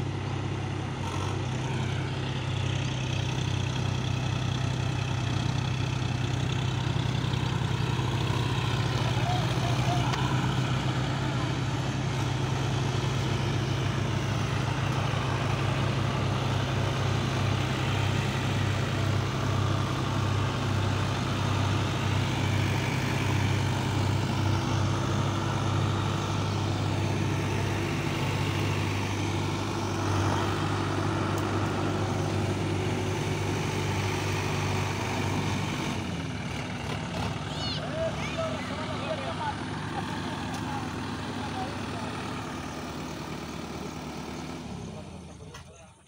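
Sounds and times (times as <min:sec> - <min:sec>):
tractor diesel engines droning: 0:00.0 - 0:46.0.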